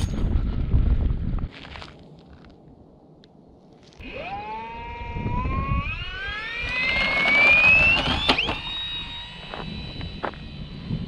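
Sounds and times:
electric motor propeller whine: 4.0 - 11.0.

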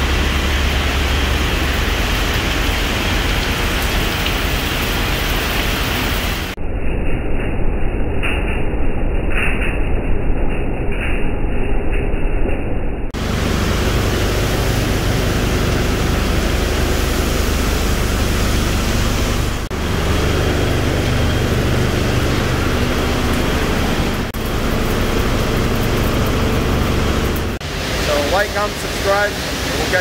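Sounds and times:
conveyor machinery din: 0.0 - 30.0
low machine hum: 0.0 - 30.0
granulated metal pouring: 13.2 - 30.0.

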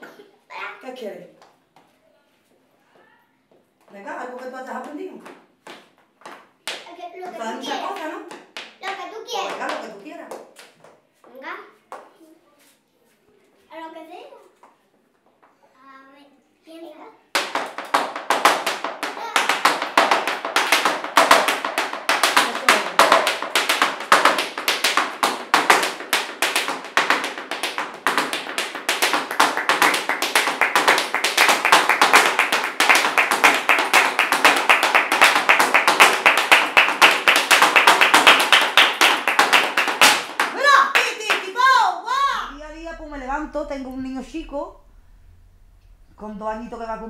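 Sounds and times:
shoes stamping on tiled floor: 3.5 - 11.1, 17.3 - 42.4.

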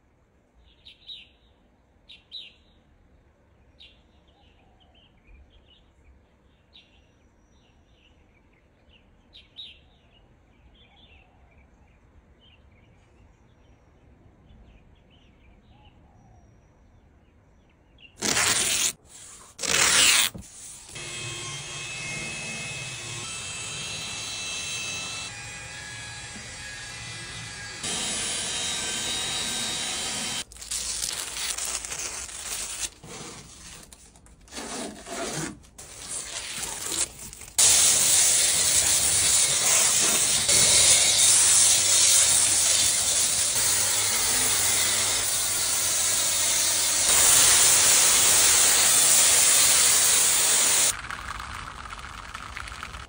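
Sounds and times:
foam cannon spraying hiss: 37.6 - 40.7.

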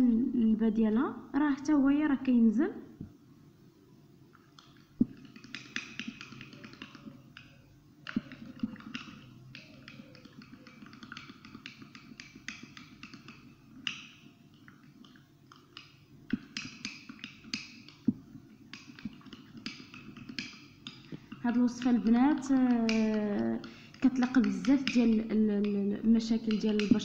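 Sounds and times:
spoon clicking against glass: 18.7 - 27.0.

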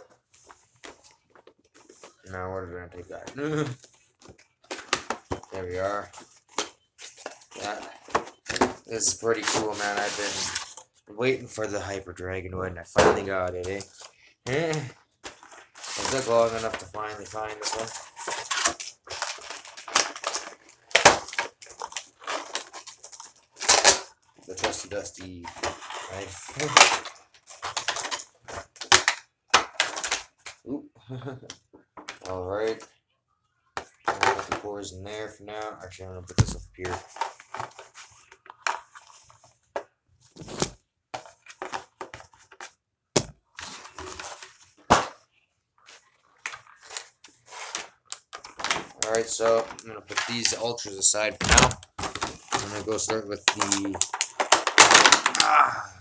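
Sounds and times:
plastic packaging crackling: 46.2 - 55.7
pieces clacking down: 51.5 - 55.6.

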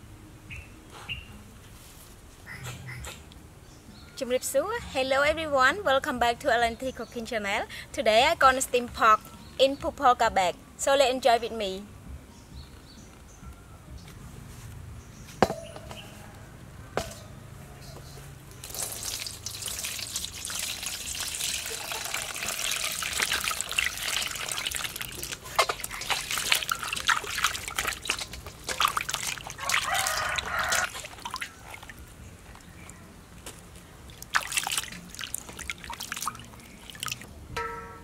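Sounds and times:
water running from hose: 18.6 - 31.9, 34.1 - 37.3.

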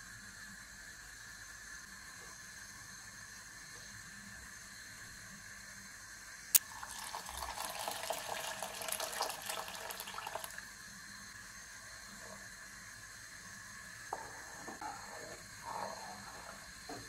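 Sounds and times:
water pouring into gravy: 6.6 - 10.7.

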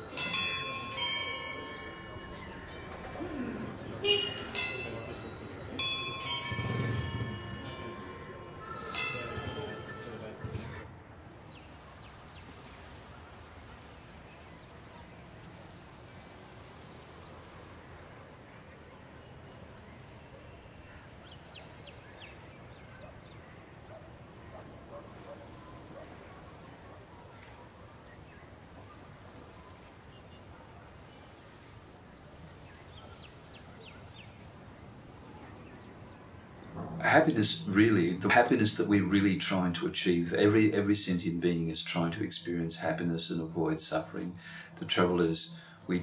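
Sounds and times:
faint bird chirps: 8.3 - 39.4
steady low background hiss: 25.2 - 46.0.

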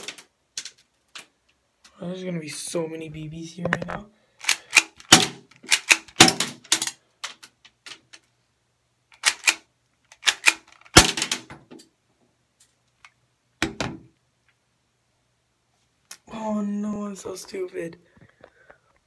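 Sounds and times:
bb gun cocking and firing: 4.4 - 6.9, 9.2 - 11.5.

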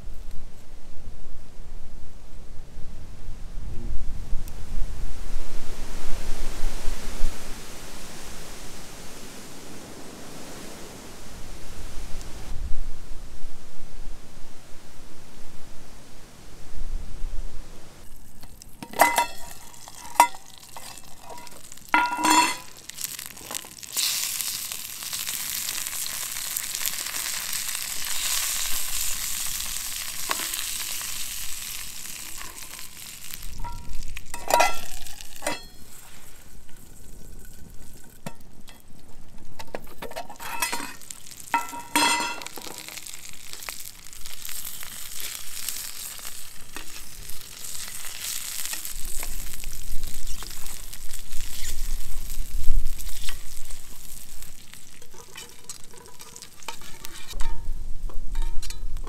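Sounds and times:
food sizzling in pan: 18.0 - 58.8
metal utensil scraping pan: 18.4 - 24.3, 32.2 - 36.0, 39.7 - 43.0, 54.9 - 59.0.

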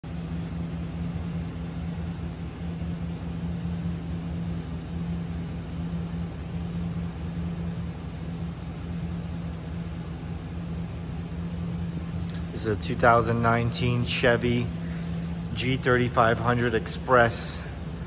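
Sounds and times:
van engine idling: 0.0 - 18.0.

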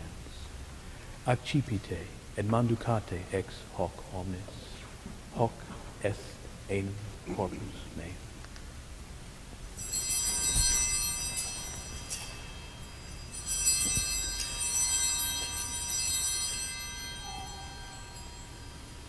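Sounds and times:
altar bells ringing: 9.8 - 19.0.

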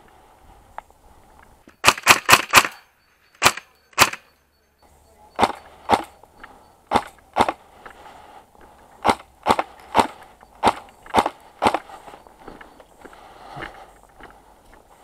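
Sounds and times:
airsoft rifle shots: 1.8 - 2.8, 3.4 - 4.3, 5.4 - 6.1, 6.9 - 7.6, 9.0 - 11.9.

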